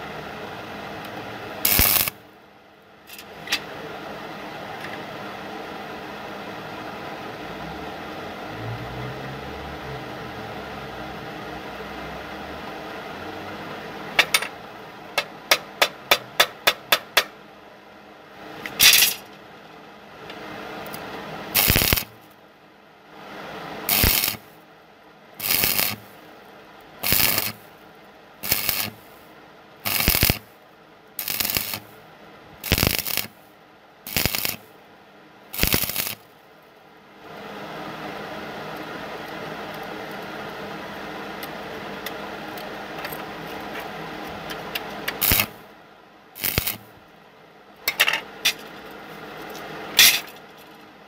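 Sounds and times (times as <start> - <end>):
welding arc crackling: 1.6 - 2.2, 20.9 - 22.3, 23.9 - 24.6, 25.4 - 26.2, 27.0 - 27.7, 28.4 - 29.2, 29.8 - 30.5, 31.2 - 32.0, 32.6 - 33.4, 34.1 - 34.7, 35.5 - 36.3, 45.1 - 45.6, 46.4 - 47.0
sharp metallic taps: 15.2 - 17.4.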